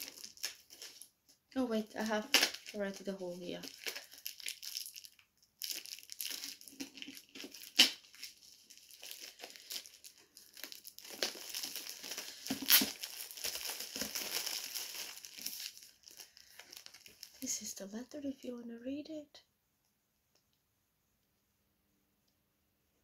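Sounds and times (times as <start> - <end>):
plastic wrapping crinkling: 0.0 - 18.6
sharp plastic crack: 2.2 - 2.8, 5.7 - 8.3, 10.6 - 15.7.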